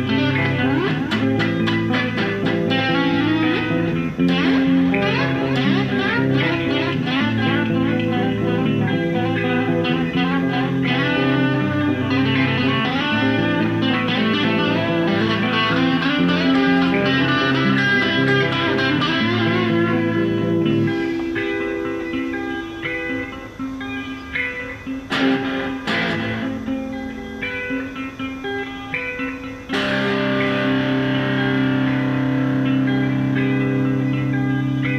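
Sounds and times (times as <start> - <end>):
electric guitar: 0.0 - 34.9.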